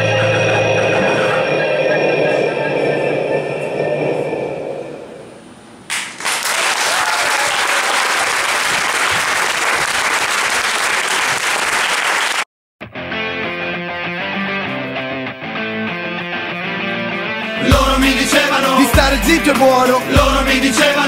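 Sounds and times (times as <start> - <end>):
music: 0.0 - 3.7, 12.8 - 21.0
audience applause: 5.9 - 12.5
guitar-led music: 12.8 - 21.0.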